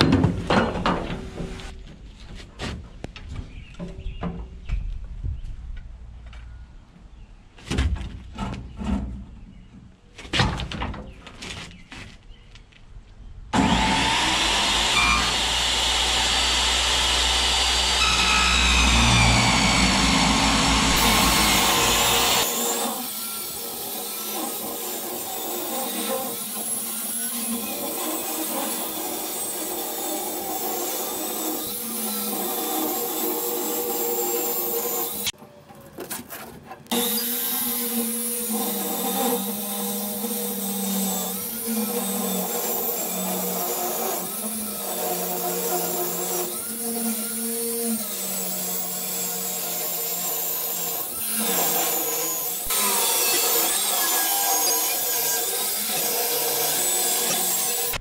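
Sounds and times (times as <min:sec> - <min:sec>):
metal knocks and clanks: 0:00.0 - 0:02.0
circular saw cutting steel: 0:13.6 - 0:35.4, 0:36.9 - 0:58.0.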